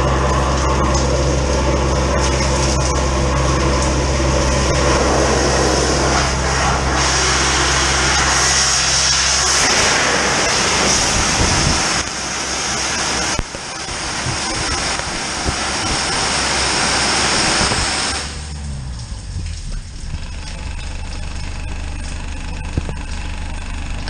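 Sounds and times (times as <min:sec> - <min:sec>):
water gushing from jetter nozzle: 0:00.0 - 0:18.3
engine humming: 0:00.0 - 0:24.0.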